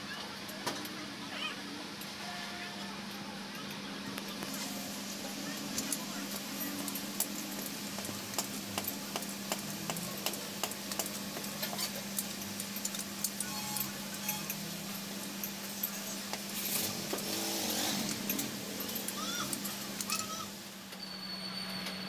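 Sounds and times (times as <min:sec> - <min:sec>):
hammer tapping on metal: 0:06.8 - 0:14.6.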